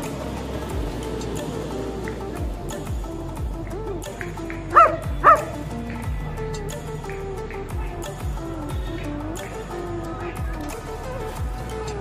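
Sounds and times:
background music with beat: 0:00.0 - 0:12.0
dog barking: 0:04.7 - 0:05.6.

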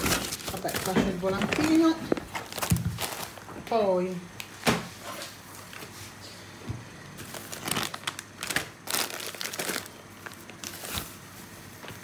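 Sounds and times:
plastic bags crinkling: 0:00.0 - 0:03.7, 0:07.2 - 0:12.0.

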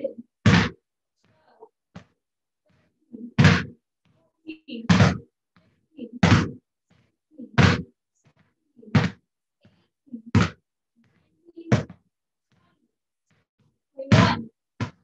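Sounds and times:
basketball bouncing on hard floor: 0:00.4 - 0:00.8, 0:03.4 - 0:03.8, 0:04.9 - 0:05.3, 0:06.2 - 0:06.6, 0:07.6 - 0:07.9, 0:08.9 - 0:09.2, 0:10.3 - 0:10.6, 0:11.7 - 0:12.0, 0:14.1 - 0:15.0.

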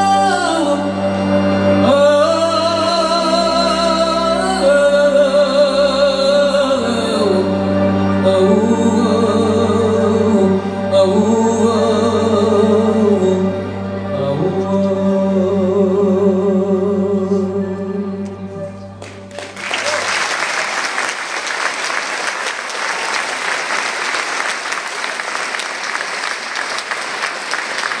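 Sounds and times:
woman singing with vibrato: 0:00.0 - 0:07.4
audience applause: 0:19.0 - 0:28.0.

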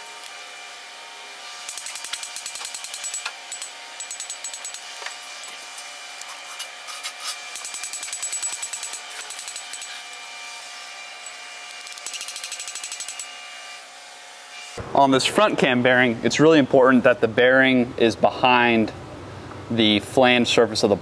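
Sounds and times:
hammer tapping metal bar: 0:01.7 - 0:04.8.

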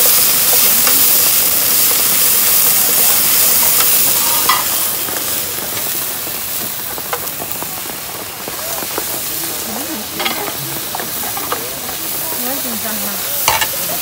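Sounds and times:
food sizzling in a frying pan: 0:00.0 - 0:14.0
wooden spatula scraping and tapping: 0:10.1 - 0:12.5.

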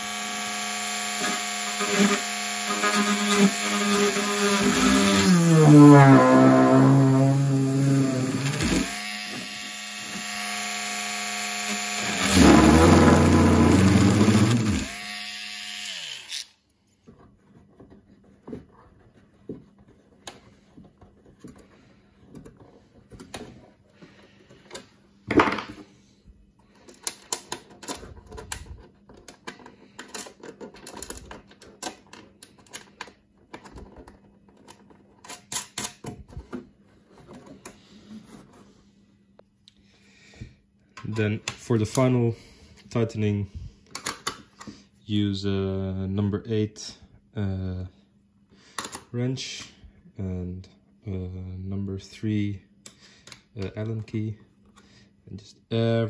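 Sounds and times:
rotary tool grinding plastic: 0:00.0 - 0:16.6.

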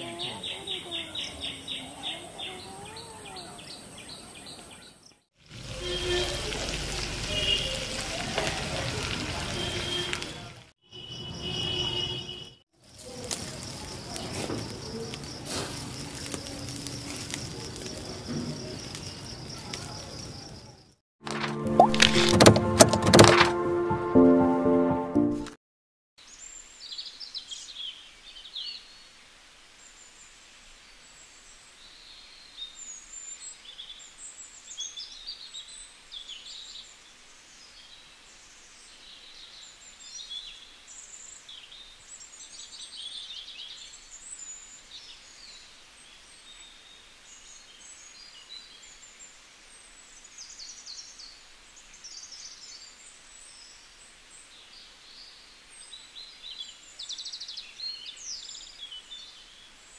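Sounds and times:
small birds chirping: 0:00.0 - 0:08.1, 0:10.9 - 0:21.0, 0:29.8 - 0:59.9
faint background hiss: 0:26.2 - 0:59.9.

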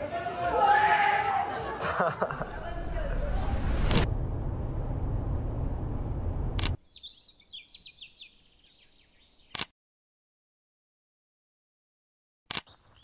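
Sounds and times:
bird chirping: 0:06.8 - 0:09.6.

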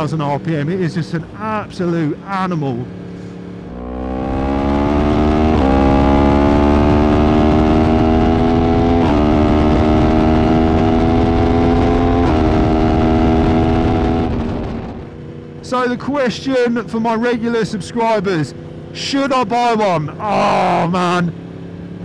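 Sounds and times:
motorcycle engine accelerating: 0:02.9 - 0:15.7.

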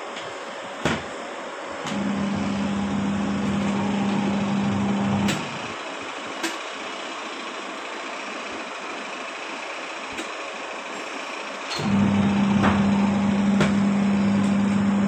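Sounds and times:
washing machine motor humming: 0:00.4 - 0:06.3, 0:11.7 - 0:15.0.

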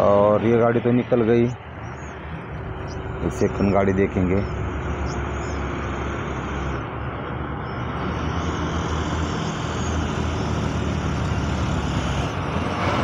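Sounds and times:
truck diesel engine pulling up: 0:00.0 - 0:13.0.

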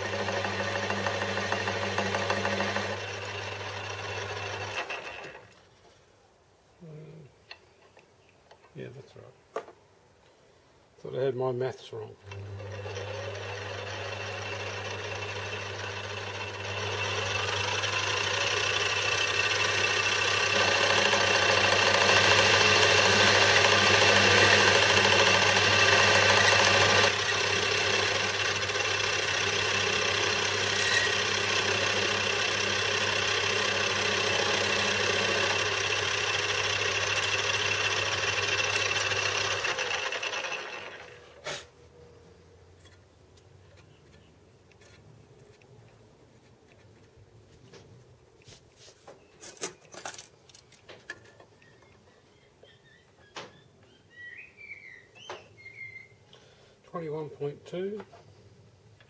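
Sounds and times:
metal lathe humming and whining: 0:00.0 - 0:04.9, 0:12.7 - 0:41.1.

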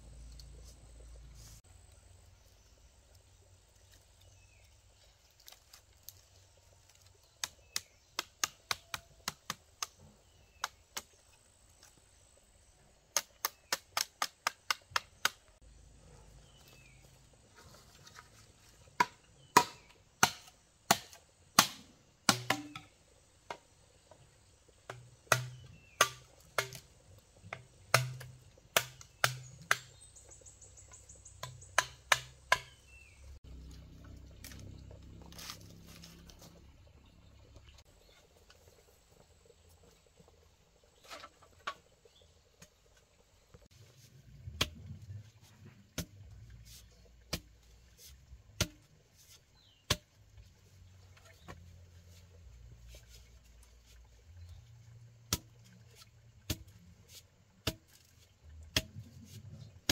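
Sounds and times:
machete chopping bamboo: 0:07.3 - 0:10.0, 0:13.1 - 0:15.5, 0:19.0 - 0:22.9, 0:24.9 - 0:26.9, 0:27.5 - 0:30.1, 0:31.4 - 0:33.2, 0:48.6 - 0:48.9, 0:49.6 - 0:50.1, 0:55.3 - 0:55.5, 0:56.5 - 0:56.7, 0:57.6 - 0:58.1, 0:58.7 - 0:59.1.

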